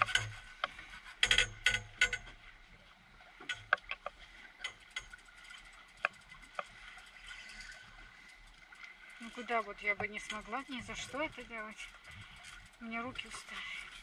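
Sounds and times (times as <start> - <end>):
fishing reel clicking: 3.6 - 14.0.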